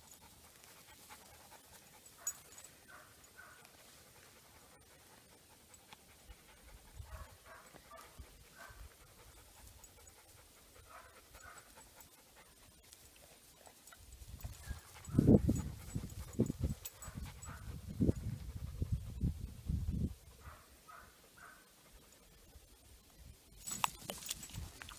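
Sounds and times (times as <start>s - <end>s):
dog panting: 0.0s - 19.5s.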